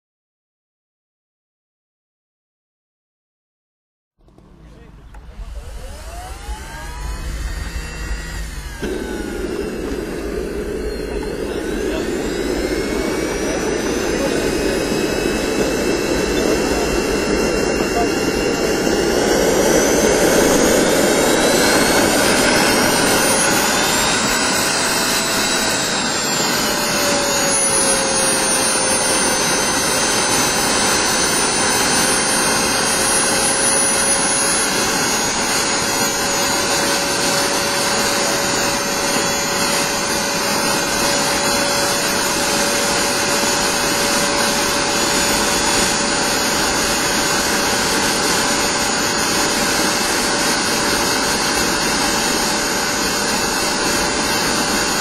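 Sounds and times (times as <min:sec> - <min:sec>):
model jet turbine whine: 0:04.2 - 0:55.0
rushing blast: 0:04.9 - 0:55.0.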